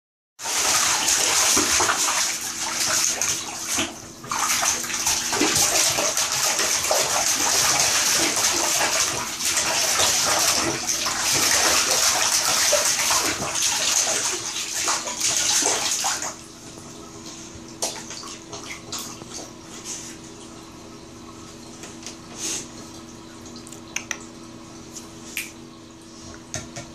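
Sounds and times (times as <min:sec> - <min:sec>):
water splashing in bathtub: 0:00.4 - 0:26.9
water dripping: 0:21.6 - 0:24.4.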